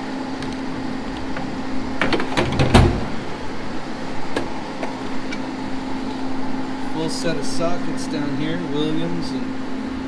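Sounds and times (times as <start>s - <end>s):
drawer shutting with a thud: 2.0s - 3.2s.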